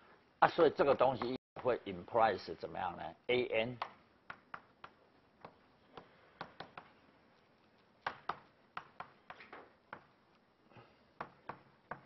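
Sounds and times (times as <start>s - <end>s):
chalk tapping on a blackboard: 3.7s - 7.0s, 7.7s - 10.4s, 11.2s - 12.0s.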